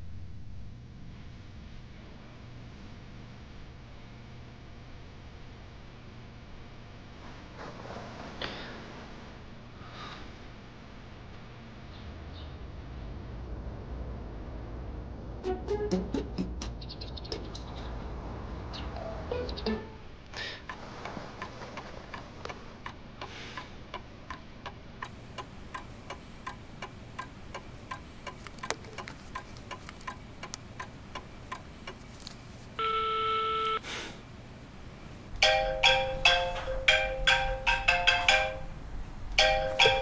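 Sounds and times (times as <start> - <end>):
light regular ticking: 20.6 - 32.5
phone ringtone melody: 32.8 - 33.8, 35.4 - 38.7, 39.4 - 40.0.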